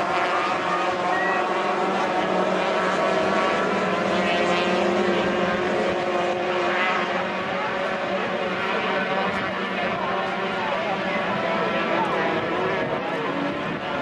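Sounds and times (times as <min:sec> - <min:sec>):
racing boat engine high revs: 0:00.0 - 0:14.0.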